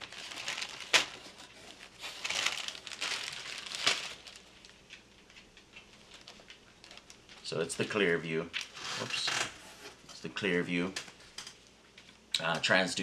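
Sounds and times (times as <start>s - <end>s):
plastic bags crinkling: 0.0s - 9.5s.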